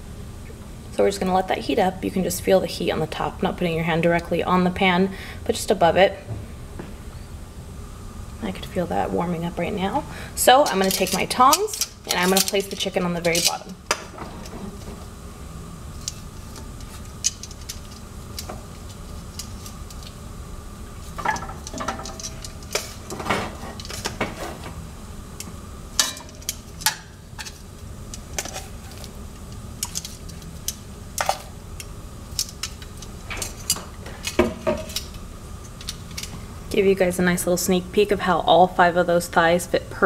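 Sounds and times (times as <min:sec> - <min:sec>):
steady low hum: 0:00.0 - 0:40.0
metal tongs clinking on pot: 0:10.6 - 0:13.7.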